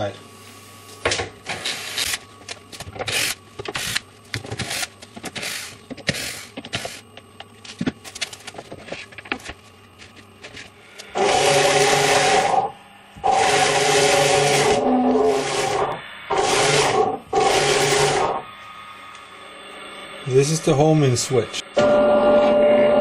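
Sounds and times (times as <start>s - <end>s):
motorized carriage rushing hum: 11.1s - 18.4s.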